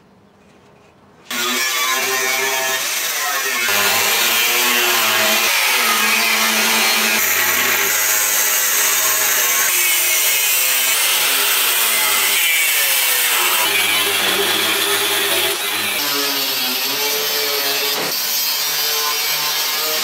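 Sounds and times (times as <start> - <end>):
angle grinder cutting steel: 1.3 - 20.0.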